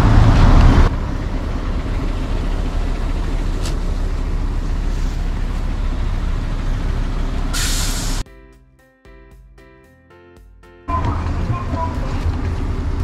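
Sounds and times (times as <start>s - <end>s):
bus engine low rumble: 0.0s - 8.2s, 10.9s - 13.0s
brief hiss: 7.6s - 8.2s.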